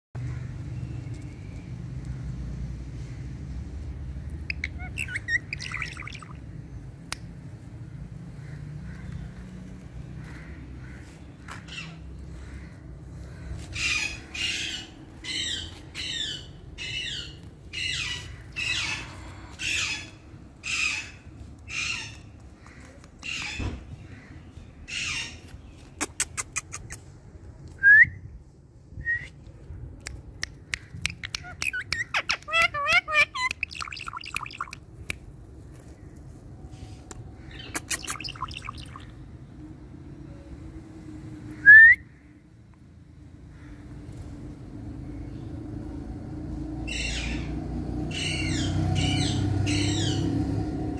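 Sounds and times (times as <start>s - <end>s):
parakeet squawking: 4.4s - 6.4s, 31.0s - 34.8s, 37.5s - 39.1s.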